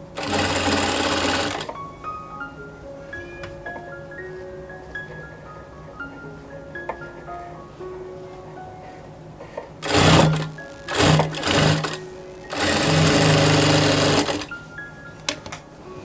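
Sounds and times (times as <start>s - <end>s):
soft background music: 0.0s - 16.0s
sewing machine stitching: 0.2s - 1.8s, 9.8s - 14.5s.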